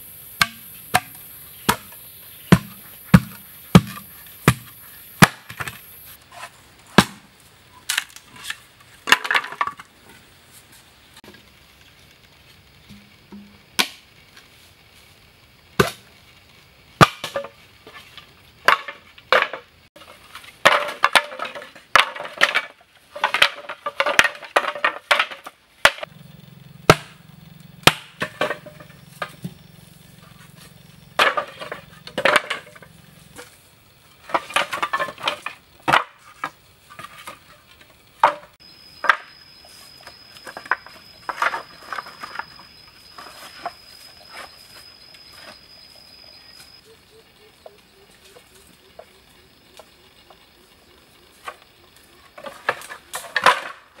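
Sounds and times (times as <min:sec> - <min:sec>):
bamboo pieces knocking together: 0:00.4 - 0:05.8, 0:06.9 - 0:10.2, 0:17.0 - 0:26.2, 0:26.9 - 0:29.6, 0:30.3 - 0:33.6, 0:34.2 - 0:39.4, 0:52.4 - 0:54.0.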